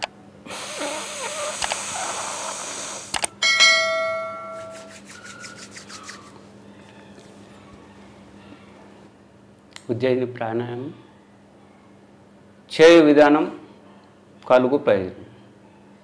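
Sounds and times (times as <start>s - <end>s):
noisy breathing through throat: 0.4s - 3.2s
quick clicks: 3.1s - 3.4s
bell-like chime: 3.4s - 4.8s.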